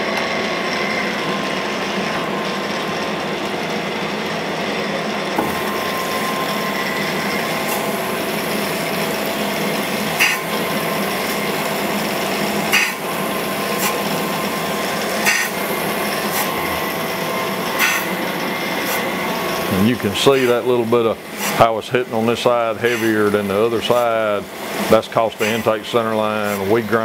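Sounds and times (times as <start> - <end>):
motor whine: 0.0 - 27.0
grinding wheel hiss: 5.4 - 27.0
sharp grinding rasps: 10.1 - 11.4, 12.6 - 13.0, 15.0 - 16.8, 17.7 - 24.2, 24.8 - 25.8.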